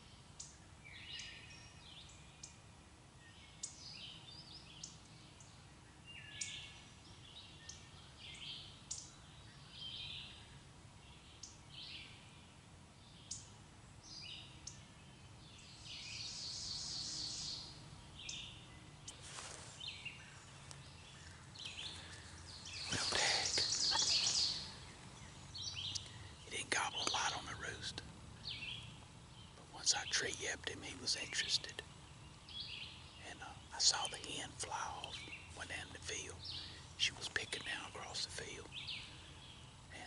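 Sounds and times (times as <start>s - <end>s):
faint low background noise: 0.0s - 40.0s
songbirds chirping: 0.0s - 40.0s.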